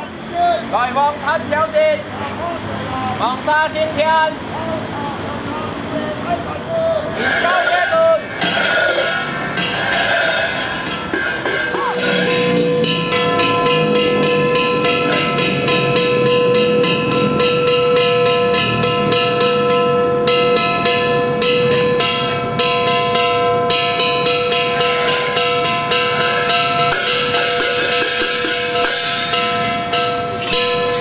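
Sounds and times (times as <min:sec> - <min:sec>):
steady ringing tone: 0:07.1 - 0:31.0.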